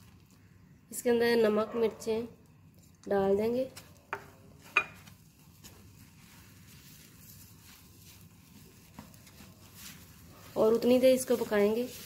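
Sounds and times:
spatula stirring dough in pan: 2.4s - 12.0s.

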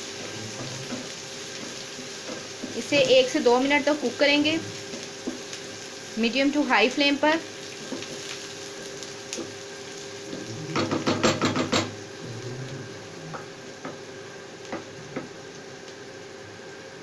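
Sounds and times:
onions sizzling in a frying pan: 0.0s - 17.0s
spatula knocking and scraping pan: 0.1s - 3.4s, 4.9s - 5.5s, 10.7s - 12.0s.

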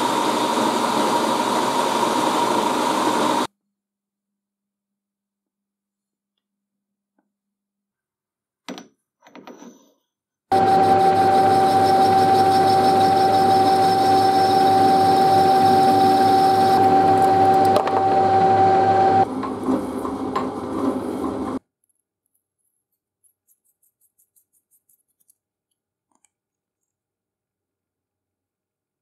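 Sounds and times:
metal lathe whining: 0.0s - 3.5s, 10.5s - 21.6s
milling machine cutting: 10.5s - 21.6s.

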